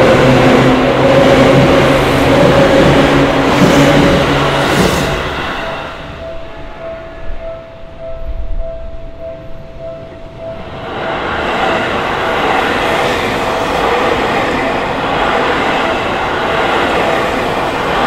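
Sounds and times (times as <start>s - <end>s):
train wheels running: 0.0s - 6.2s.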